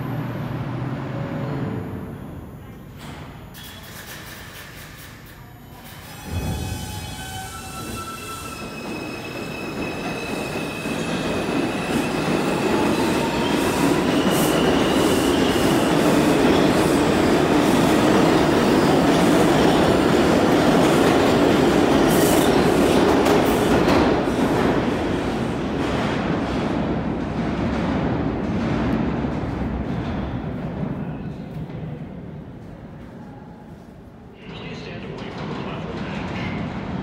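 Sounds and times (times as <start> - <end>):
subway train motor whine: 0.0 - 27.3.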